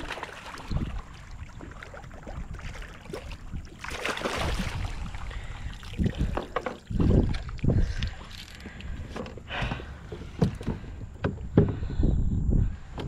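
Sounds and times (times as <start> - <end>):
fish splashing in water: 0.0 - 7.5.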